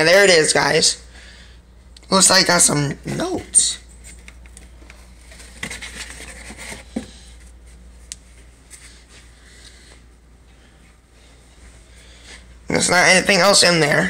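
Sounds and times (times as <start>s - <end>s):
paper and cardboard rustling: 5.0s - 9.1s.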